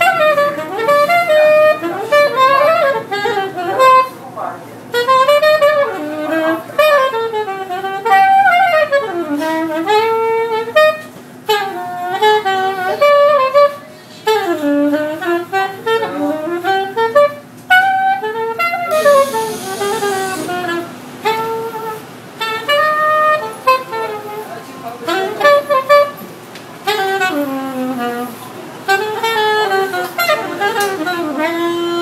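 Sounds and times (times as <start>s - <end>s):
soprano saxophone jazz melody: 0.0s - 32.0s.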